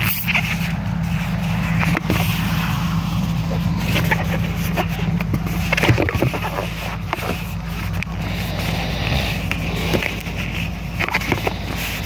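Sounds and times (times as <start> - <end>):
balloon squeaking and rubbing: 3.3 - 12.0.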